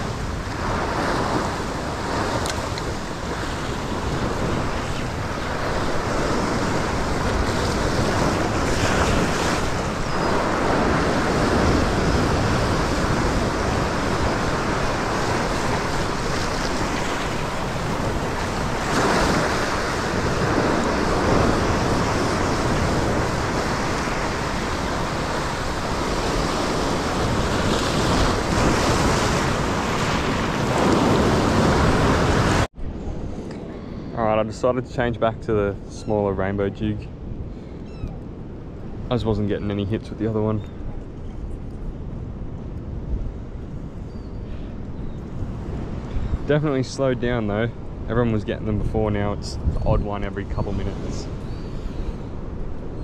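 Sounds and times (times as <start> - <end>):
surf breaking over rocks: 0.0 - 32.7
wind buffeting microphone: 0.0 - 53.0.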